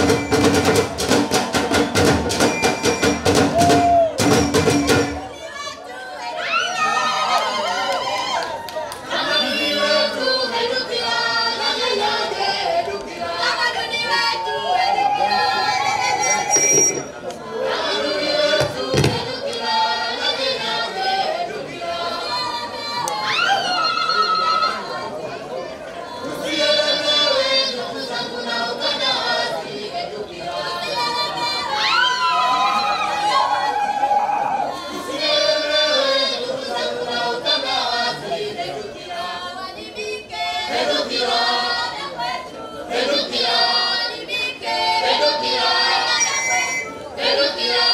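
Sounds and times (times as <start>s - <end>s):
group of voices singing: 8.9s - 47.9s.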